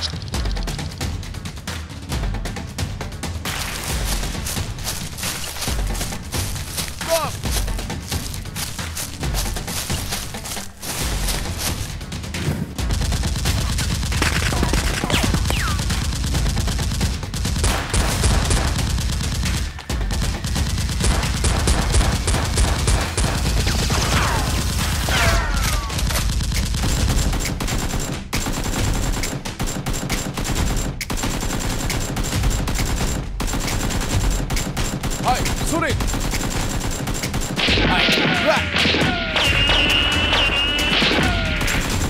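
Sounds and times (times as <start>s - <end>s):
automatic gunfire: 12.9s - 42.0s.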